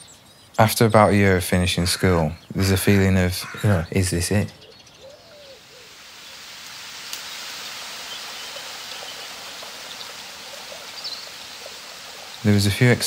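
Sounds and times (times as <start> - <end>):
water rushing down a rocky stream: 5.8 - 13.0
faint click: 6.6 - 7.3.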